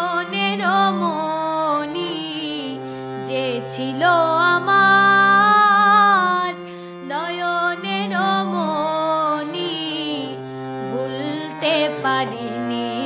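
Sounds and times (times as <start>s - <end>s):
song with held wavering note: 0.0s - 13.0s.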